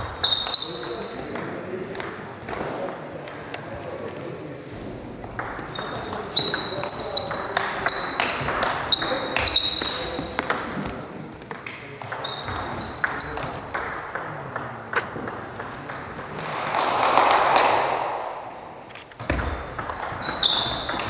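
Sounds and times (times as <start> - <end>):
shoe squeaks on floor: 0.0 - 1.4, 5.6 - 11.2, 12.1 - 13.8, 19.2 - 21.0.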